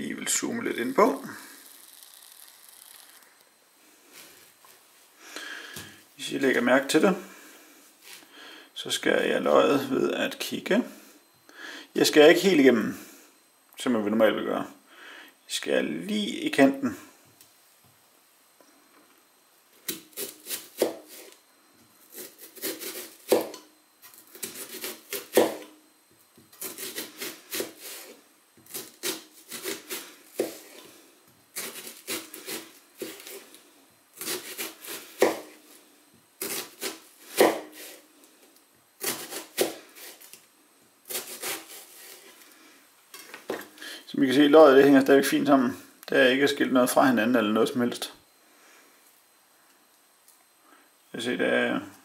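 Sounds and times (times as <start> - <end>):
knife slicing onion: 19.8 - 21.4, 22.0 - 25.8, 26.5 - 30.9, 31.5 - 33.5, 34.2 - 35.8, 36.4 - 38.0, 39.0 - 40.3, 41.1 - 42.4.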